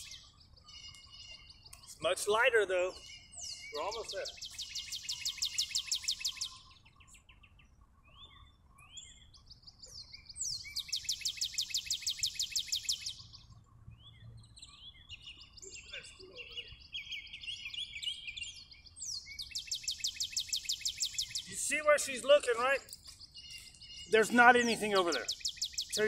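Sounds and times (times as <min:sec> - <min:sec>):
bird high trill: 0:00.0 - 0:06.8, 0:15.7 - 0:26.0
birds chirping and twittering: 0:00.0 - 0:26.0.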